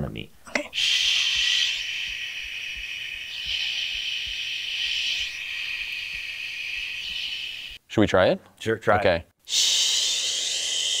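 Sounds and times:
man making a shh hiss: 0.7 - 7.8, 9.5 - 11.0.

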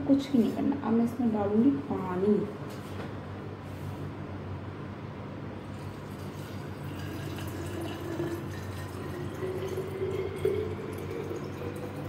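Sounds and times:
water pouring into glass bottle: 5.7 - 12.0.

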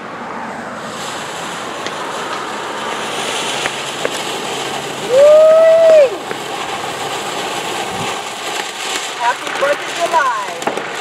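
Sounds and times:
firework fountain hissing: 0.0 - 11.0
faint crackles: 0.8 - 11.0
loud whistling tone: 5.0 - 6.3.

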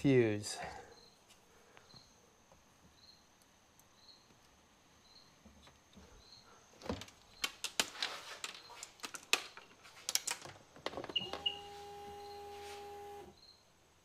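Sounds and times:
hands clicking and rattling connectors: 6.8 - 11.2.

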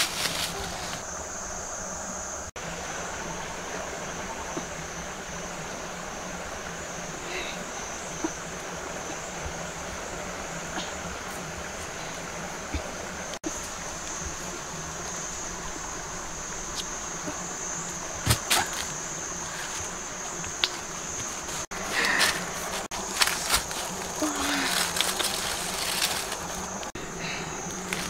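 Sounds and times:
high-pitched insect buzz: 0.0 - 28.0
flowing water rushing: 2.6 - 17.2.

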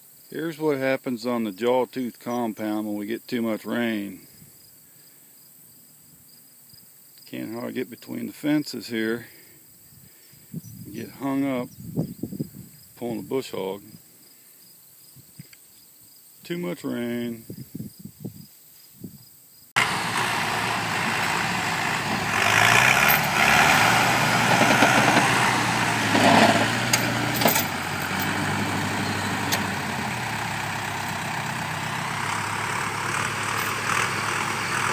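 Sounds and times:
diesel engine running: 19.8 - 34.9
sharp metallic clanks: 26.1 - 28.4.

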